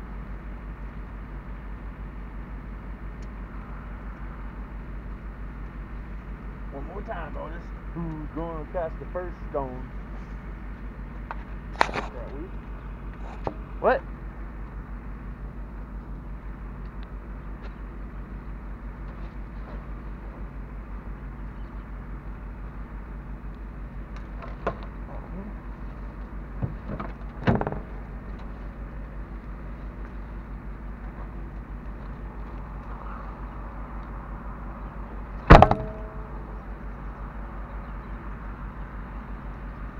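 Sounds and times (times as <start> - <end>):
car engine idling: 0.0 - 39.9
knocks of things being handled: 35.5 - 36.1
loud metallic clank: 35.5 - 36.5.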